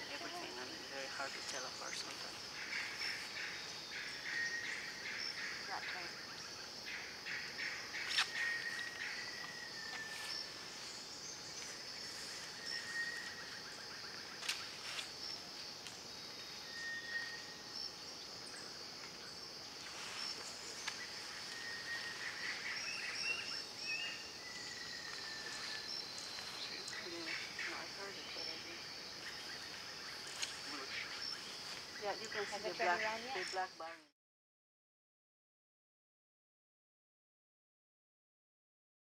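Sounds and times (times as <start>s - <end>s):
insects droning: 0.0s - 34.1s
bird chirps: 1.3s - 14.6s
bird whistling: 12.6s - 13.4s, 16.6s - 17.6s.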